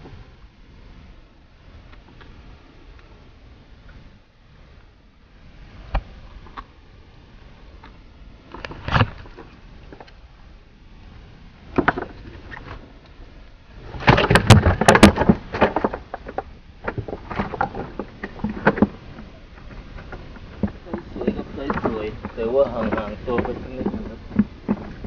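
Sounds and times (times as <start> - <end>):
knocks and clatter on boat: 11.7 - 12.8, 13.9 - 25.0.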